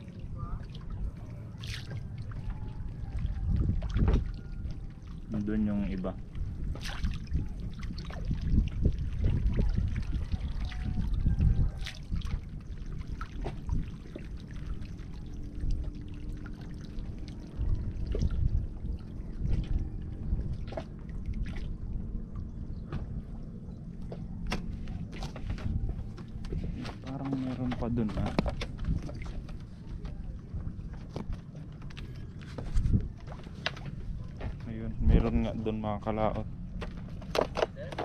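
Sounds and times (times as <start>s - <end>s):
low uneven rumble: 0.0s - 38.0s
water lapping and trickling: 0.0s - 38.0s
small clicks and splashes: 0.6s - 5.3s, 6.7s - 19.8s, 24.0s - 34.6s.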